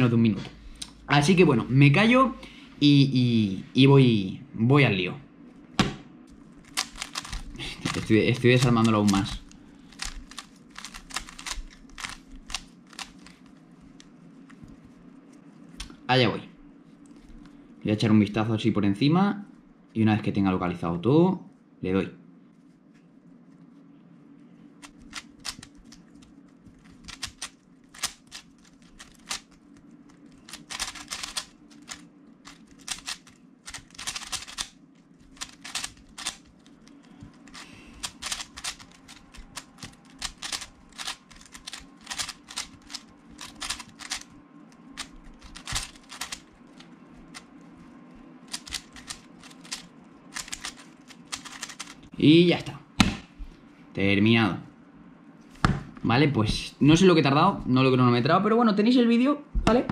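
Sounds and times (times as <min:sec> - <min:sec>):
puzzle cube plastic clicks: 0:06.6 - 0:13.5, 0:24.8 - 0:47.5, 0:48.4 - 0:52.1.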